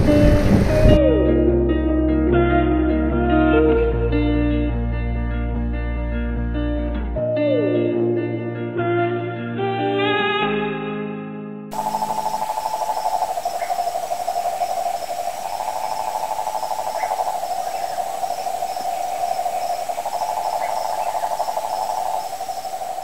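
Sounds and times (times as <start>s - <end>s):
faint insect chirring: 11.7s - 23.0s
frog trilling: 11.7s - 23.0s.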